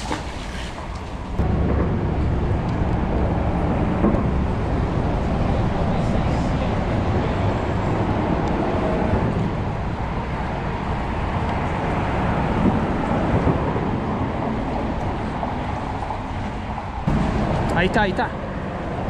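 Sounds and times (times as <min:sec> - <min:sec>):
road traffic noise: 0:00.0 - 0:19.0
wind buffeting microphone: 0:00.0 - 0:19.0.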